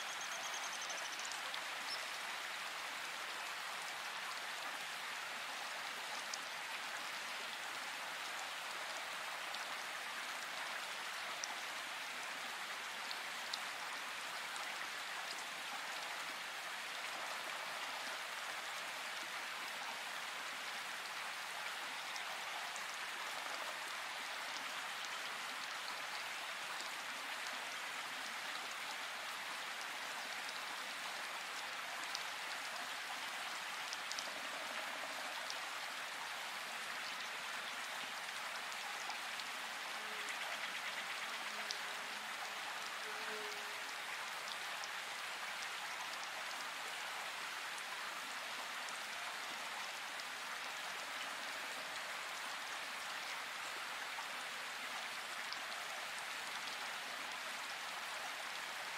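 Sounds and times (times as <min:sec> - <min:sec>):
faint rain ticks: 0:00.0 - 0:46.7
steady rain hiss: 0:00.0 - 0:58.9.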